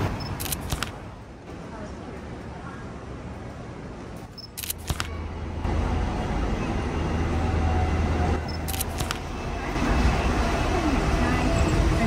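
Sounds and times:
sharp clicks: 0.2 - 1.0, 4.4 - 5.1, 8.5 - 9.2.

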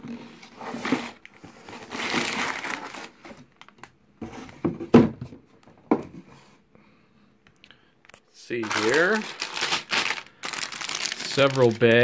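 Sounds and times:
plastic bags crinkling: 1.1 - 3.9, 8.5 - 12.0.

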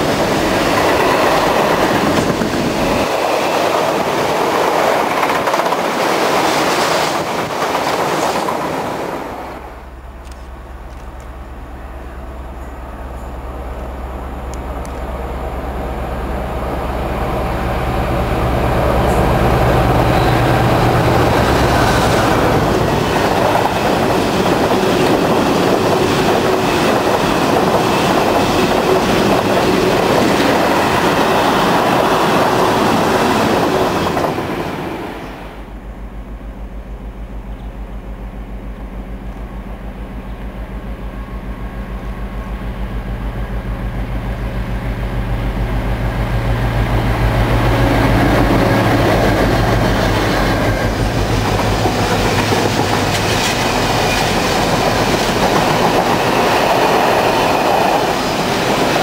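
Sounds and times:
train wheels clattering on rails: 0.0 - 9.4, 19.0 - 35.4, 46.7 - 59.0
diesel locomotive engine pulsing: 7.2 - 59.0.

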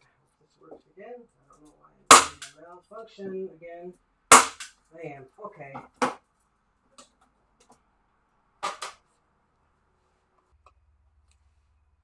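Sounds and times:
sharp double knock: 4.3 - 4.7.

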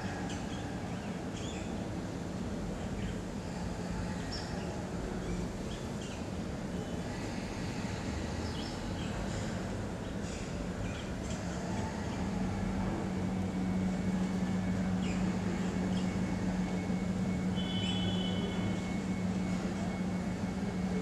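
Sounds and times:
faint bird chirps: 17.5 - 18.7.

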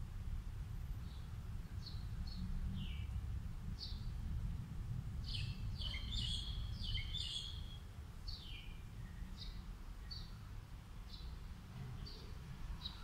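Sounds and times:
low steady rumble: 0.0 - 13.0
bird chirping: 5.2 - 10.5, 11.1 - 13.0.

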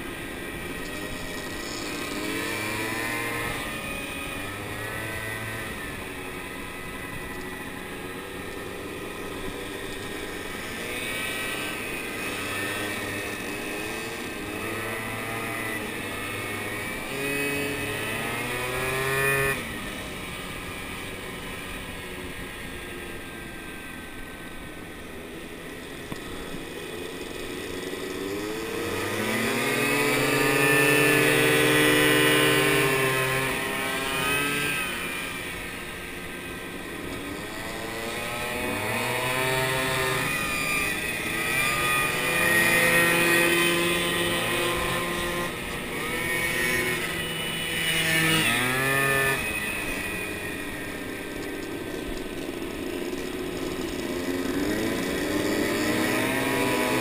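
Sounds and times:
scooter engine revving: 0.0 - 57.0.

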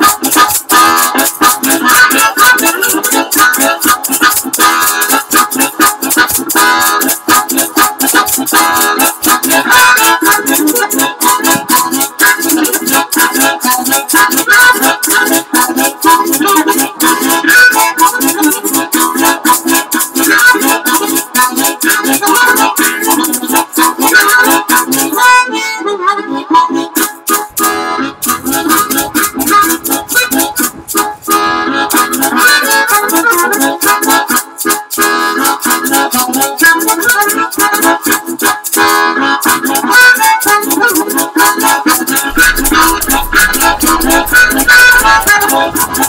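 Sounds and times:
pulsing rhythmic backing: 0.0 - 21.1, 26.9 - 46.0
harmonica playing: 0.0 - 46.0.

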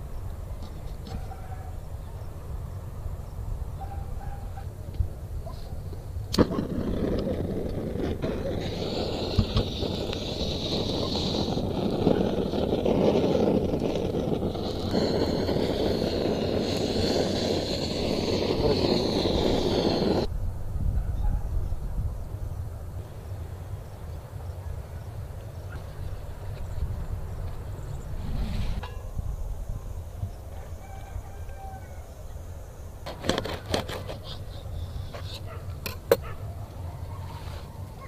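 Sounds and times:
blowtorch flame hissing: 5.8 - 20.3
blowtorch ignition click: 6.3 - 20.3.

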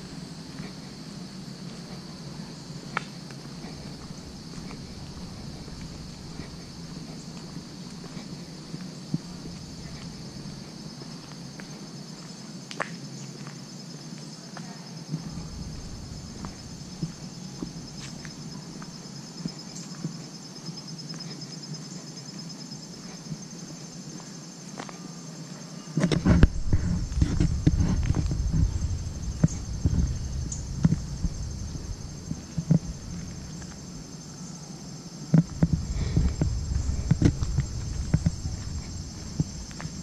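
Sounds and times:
insects chirring chorus: 0.0 - 40.0
loud low rumbling: 3.6 - 7.8, 15.2 - 18.5, 26.4 - 34.2, 35.4 - 40.0.

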